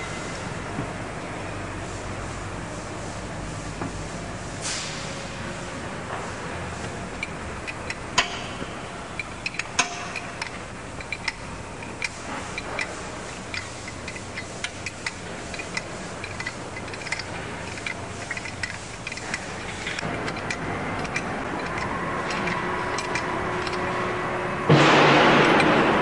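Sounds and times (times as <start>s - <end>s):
steady low hum: 0.0s - 26.0s
metallic clicks of tools: 7.2s - 23.9s.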